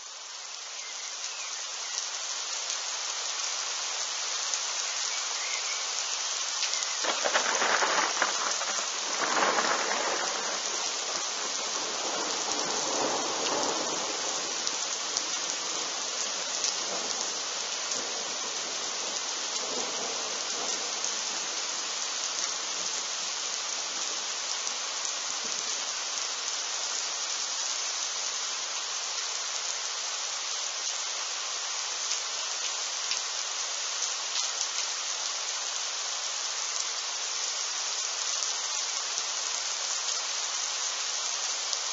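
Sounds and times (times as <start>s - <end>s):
steady rain hissing: 0.0s - 41.9s
thunderclap and rumble: 7.0s - 11.3s.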